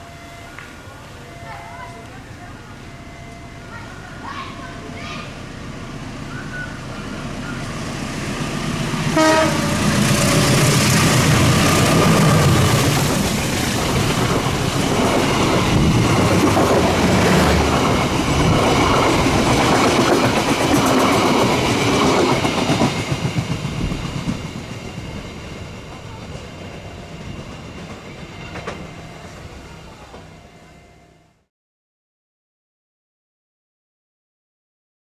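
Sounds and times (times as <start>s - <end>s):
diesel train passing: 0.0s - 31.5s
train horn blast: 9.1s - 10.6s
train wheels clattering on rails: 9.9s - 30.4s.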